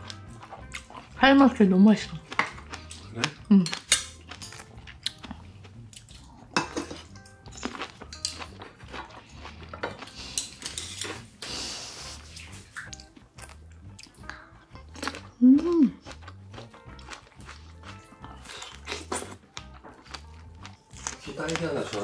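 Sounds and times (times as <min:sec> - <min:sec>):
faint background music: 0:00.0 - 0:22.0
dishes clinking on metal tray: 0:06.6 - 0:07.2.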